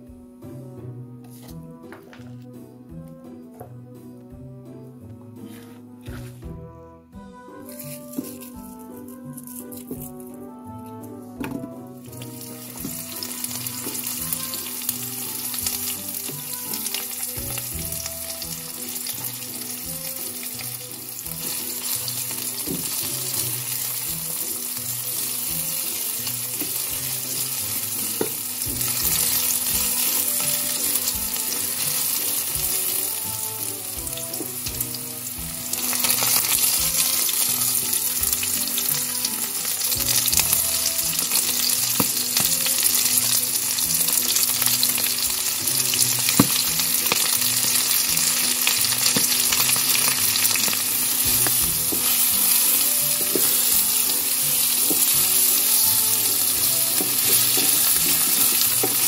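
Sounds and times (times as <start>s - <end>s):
wooden spatula stirring: 7.6s - 34.9s, 35.7s - 59.0s
onions sizzling in oil: 7.7s - 10.3s, 11.4s - 59.0s.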